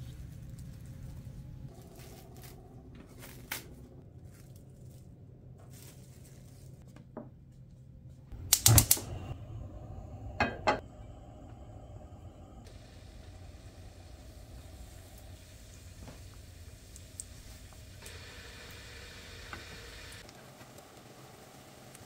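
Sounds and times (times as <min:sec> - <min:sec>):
steady low hum: 0:07.4 - 0:20.2.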